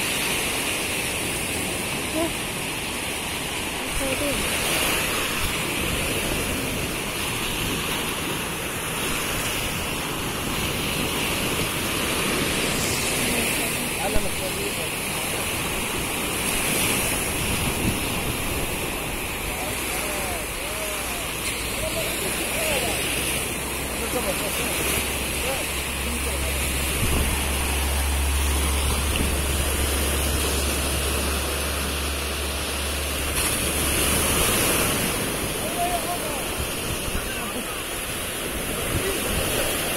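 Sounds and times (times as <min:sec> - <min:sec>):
surf breaking on beach: 0:00.0 - 0:39.9
wind buffeting microphone: 0:04.0 - 0:20.6, 0:24.8 - 0:39.9.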